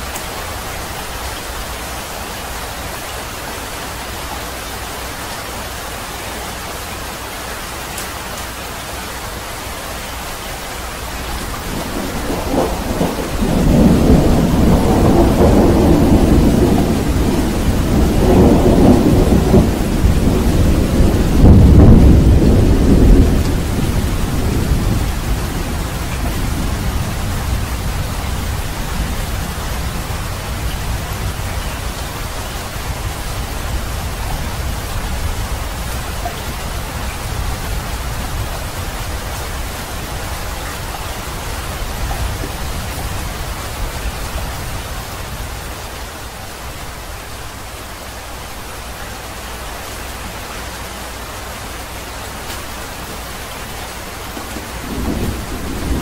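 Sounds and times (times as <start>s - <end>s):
heavy rain falling: 0.0s - 56.0s
thunder rumble: 10.9s - 46.4s, 52.5s - 56.0s.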